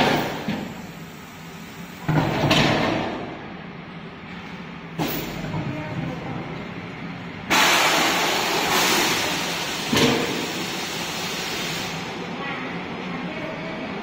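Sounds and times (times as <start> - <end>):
loud hiss of spraying jets: 7.5 - 12.2.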